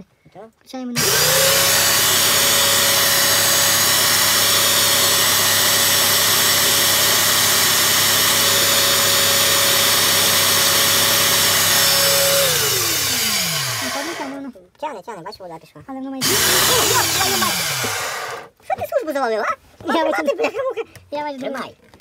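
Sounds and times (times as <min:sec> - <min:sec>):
paint sprayer motor whining: 0:01.0 - 0:14.4, 0:16.2 - 0:18.5.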